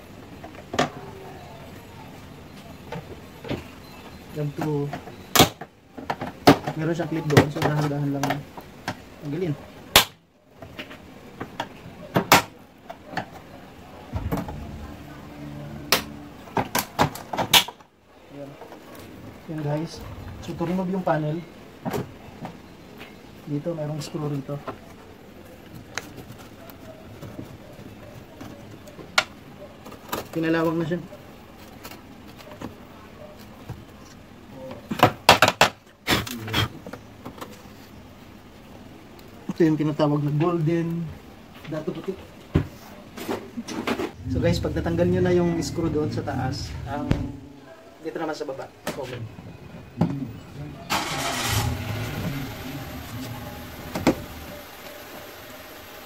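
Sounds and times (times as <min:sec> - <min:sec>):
low steady hum: 0:13.6 - 0:17.4, 0:44.1 - 0:48.2.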